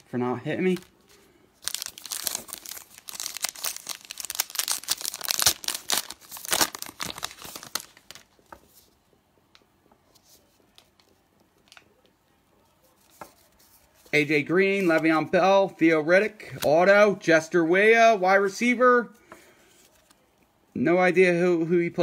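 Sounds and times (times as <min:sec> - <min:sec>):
foil wrapper tearing and crinkling: 0:01.6 - 0:08.3.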